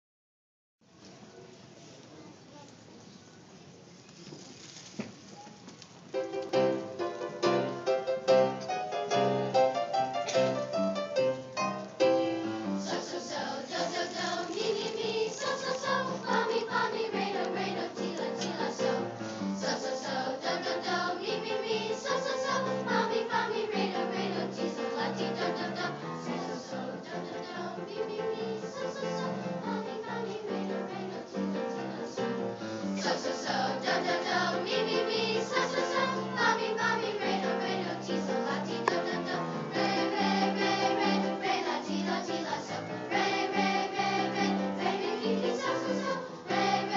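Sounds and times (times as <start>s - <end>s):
low instrumental notes: 6.2s - 12.7s
children's choir singing: 11.6s - 46.9s.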